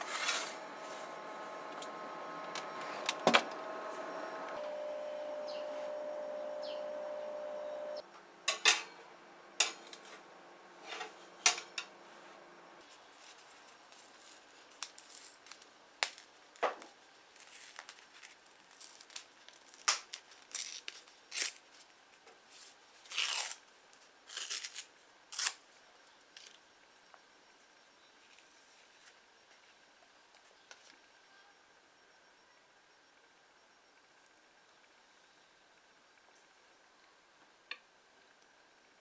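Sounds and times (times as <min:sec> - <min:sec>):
steady hum: 0:00.0 - 0:13.8.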